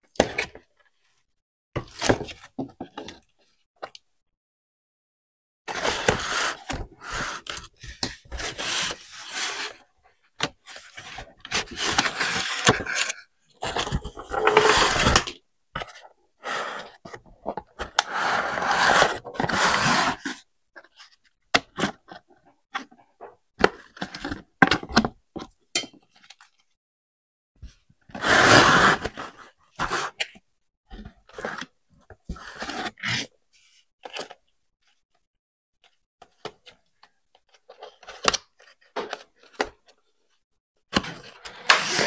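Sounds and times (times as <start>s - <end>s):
packaging scraping and rubbing: 11.5s - 15.3s, 41.4s - 42.0s.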